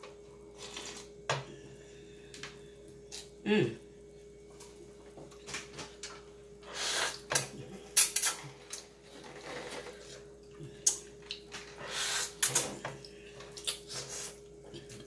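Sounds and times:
faint steady hum: 0.0 - 15.0
person slurping noodles: 6.7 - 7.3, 11.8 - 12.6.

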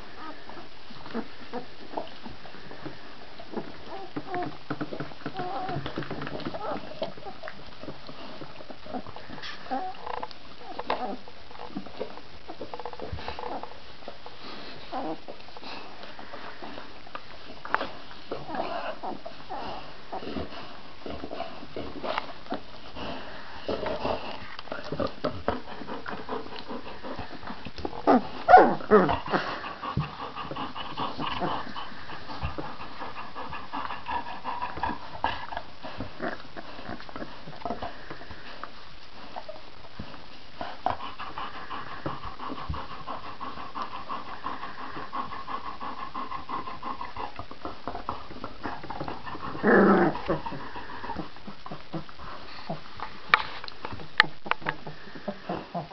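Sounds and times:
puppies squeaking and whimpering: 5.3 - 7.4.

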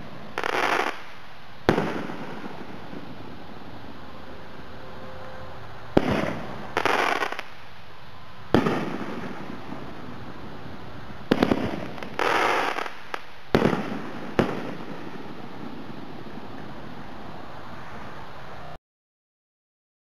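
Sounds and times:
firework booms: 0.0 - 3.4, 6.0 - 7.5, 8.5 - 16.7
firework crackling: 0.0 - 4.8, 5.6 - 18.5.

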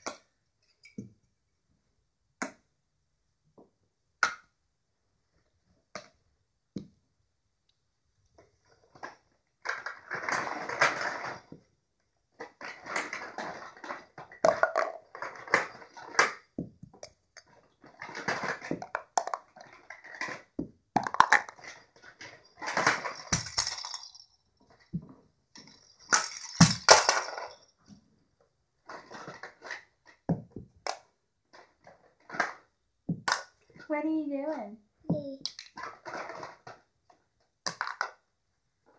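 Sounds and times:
plastic toy pieces clattering: 8.8 - 11.6, 12.4 - 25.0, 25.6 - 27.8, 28.8 - 33.8, 35.4 - 38.3.

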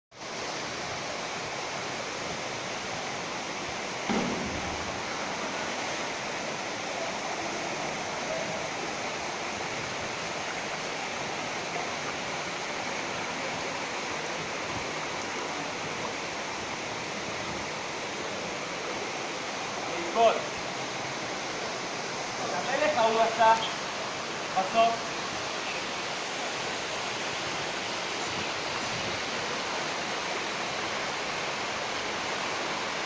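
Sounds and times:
waterfall rushing: 0.2 - 33.0
brief thump: 4.0 - 5.0.

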